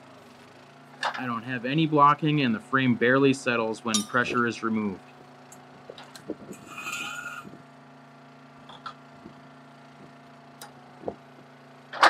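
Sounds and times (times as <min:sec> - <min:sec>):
low machine hum: 0:00.0 - 0:12.0
metal scraping hiss: 0:06.6 - 0:07.5.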